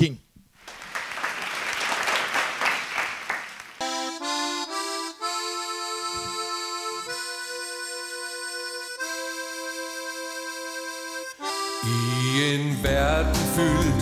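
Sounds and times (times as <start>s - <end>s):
audience applauding: 0.6s - 3.8s
accordion-like held chords: 3.8s - 14.0s.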